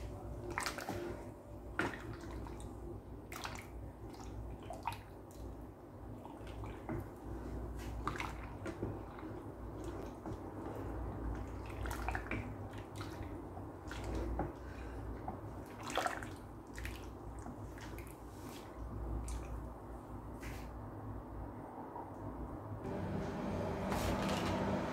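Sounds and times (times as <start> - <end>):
liquid sloshing: 0.4 - 19.8.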